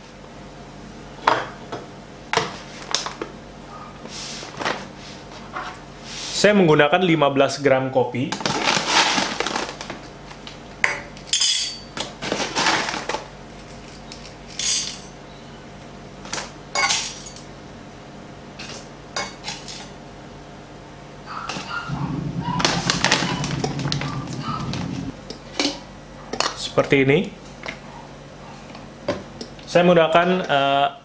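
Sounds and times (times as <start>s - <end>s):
steady low hum: 20.1s - 26.4s.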